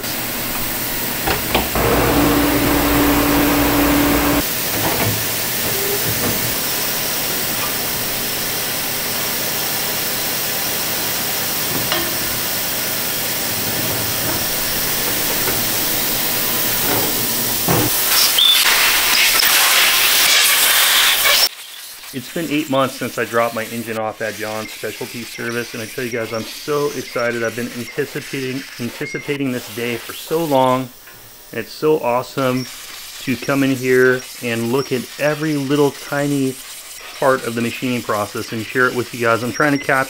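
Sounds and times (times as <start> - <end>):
hot-water spray wand hissing: 0.8 - 4.4
steady hum: 1.0 - 4.4.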